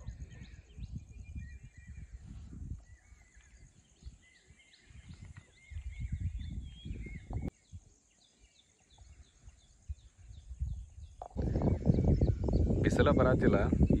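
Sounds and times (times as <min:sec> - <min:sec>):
birds chirping and whistling: 0:00.0 - 0:14.0
wind rumbling on microphone: 0:00.0 - 0:14.0.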